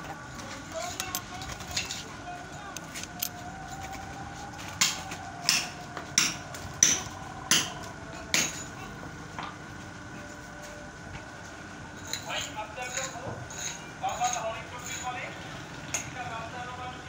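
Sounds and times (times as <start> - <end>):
metal tool striking manhole cover: 5.5 - 8.7.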